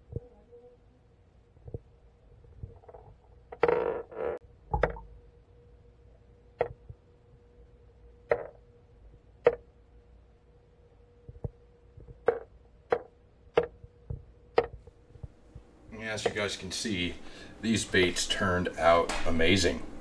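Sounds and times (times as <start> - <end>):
faint steady hum: 0.0 - 20.0
sharp underwater knocks: 4.7 - 5.1.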